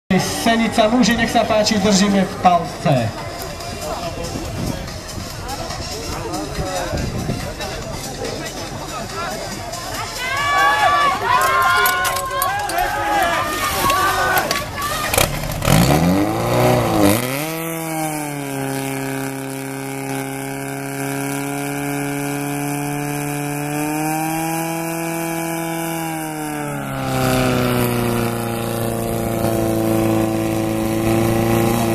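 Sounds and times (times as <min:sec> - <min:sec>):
fire pump engine running: 0:00.1 - 0:31.9.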